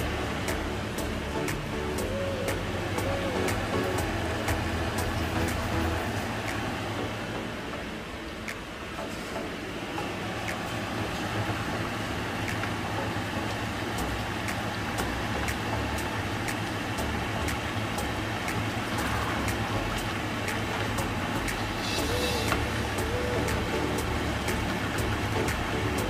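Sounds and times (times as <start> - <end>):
steady low rumble: 0.0 - 26.0
sharp ticks: 12.4 - 26.0.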